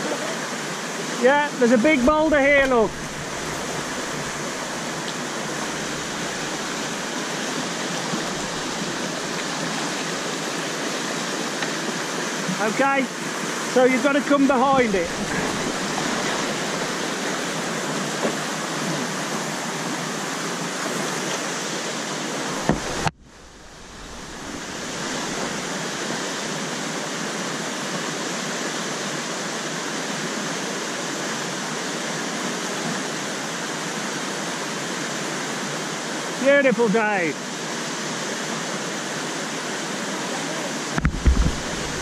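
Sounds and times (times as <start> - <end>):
whitewater rapids rushing: 0.0 - 42.0
short knock: 41.0 - 42.0.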